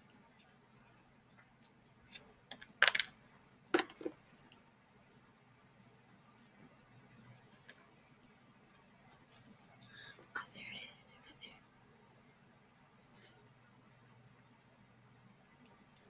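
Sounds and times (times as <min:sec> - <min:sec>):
plastic tub clicks and crackles: 0:02.5 - 0:03.1, 0:03.8 - 0:04.2.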